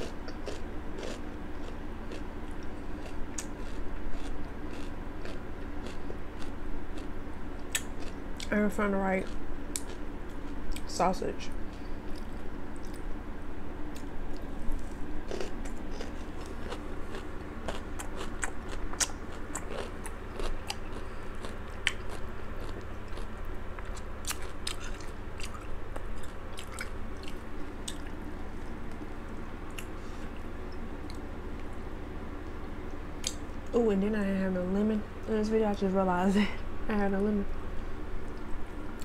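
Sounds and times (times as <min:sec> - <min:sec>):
person chewing: 0:00.0 - 0:08.5, 0:09.2 - 0:10.9, 0:12.0 - 0:13.2, 0:13.9 - 0:31.7
steady low hum: 0:00.0 - 0:39.0.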